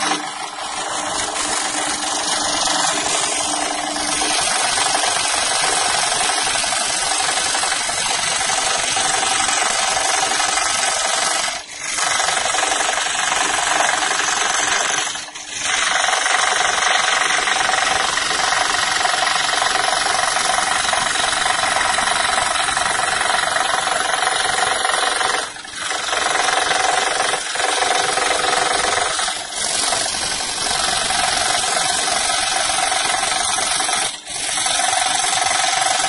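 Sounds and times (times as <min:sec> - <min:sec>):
scroll saw cutting wood: 0:00.0 - 0:36.0.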